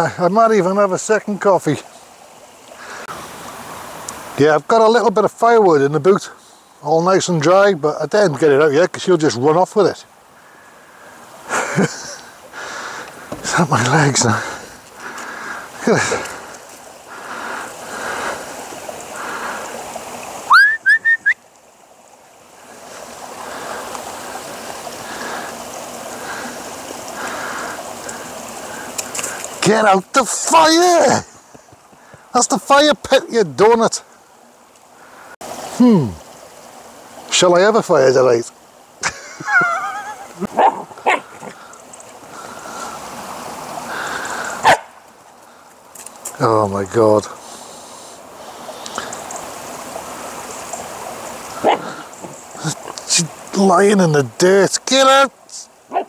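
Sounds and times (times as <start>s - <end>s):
rustling hiss: 0.0s - 56.0s
stream running over stones: 0.0s - 56.0s
person whistling: 20.5s - 21.4s.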